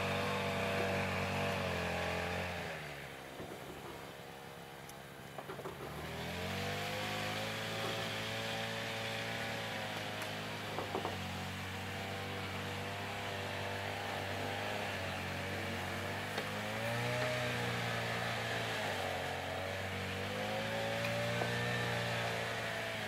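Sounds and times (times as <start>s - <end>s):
engine starting and running: 4.8s - 11.4s.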